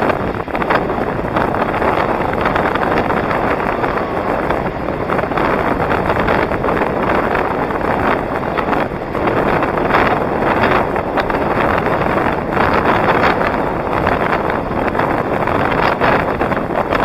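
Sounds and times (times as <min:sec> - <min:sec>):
skate wheels rolling on asphalt: 0:00.0 - 0:17.0
wind noise on microphone: 0:00.0 - 0:17.0.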